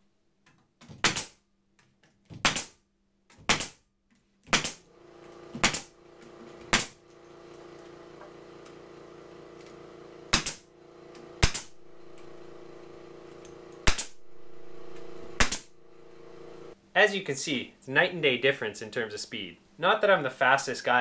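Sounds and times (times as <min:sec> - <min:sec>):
pneumatic stapler shots: 0:01.0 - 0:01.4, 0:02.4 - 0:02.8, 0:03.5 - 0:03.8, 0:04.5 - 0:04.8, 0:05.5 - 0:05.9, 0:06.7 - 0:07.0, 0:10.3 - 0:10.7, 0:11.4 - 0:11.8, 0:13.8 - 0:14.2, 0:15.4 - 0:15.7
steady hum: 0:04.8 - 0:16.8.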